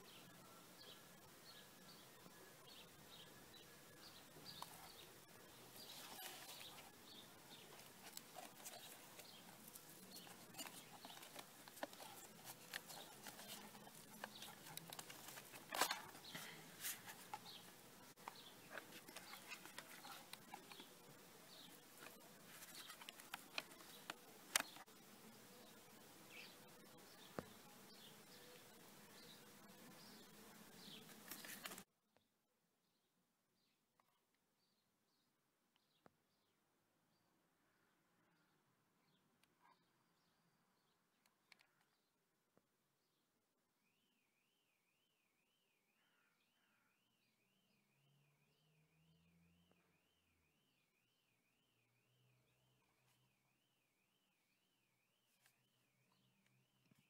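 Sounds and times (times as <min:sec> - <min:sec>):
plastic handling clicks and rustles: 0:07.5 - 0:17.5, 0:31.1 - 0:31.8.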